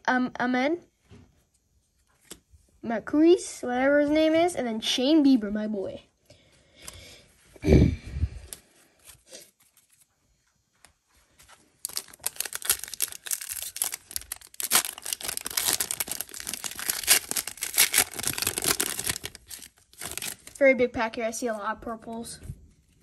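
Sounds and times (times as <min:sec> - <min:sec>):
card pack wrapper crinkling: 0:11.8 - 0:20.6.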